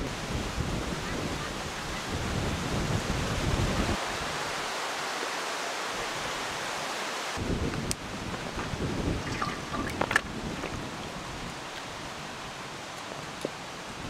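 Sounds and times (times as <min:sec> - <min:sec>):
wind buffeting microphone: 0:00.0 - 0:04.3, 0:07.4 - 0:14.0
wind hissing through trees and grass: 0:00.0 - 0:14.0.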